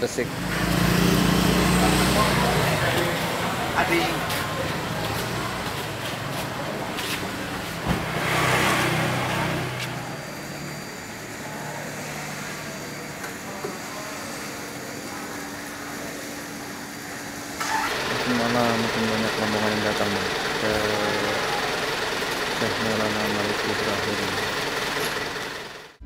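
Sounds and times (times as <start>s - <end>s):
vehicle passing: 0.0s - 12.8s
steady traffic hum: 0.0s - 26.0s
vehicle engine running: 0.0s - 26.0s.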